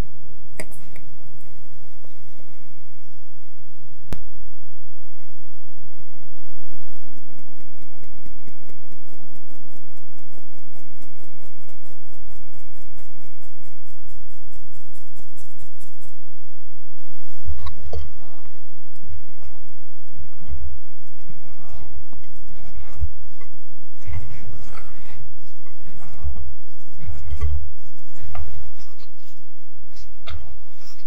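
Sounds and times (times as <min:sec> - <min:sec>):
spatula scraping in glass bowl: 0:21.5 - 0:31.0.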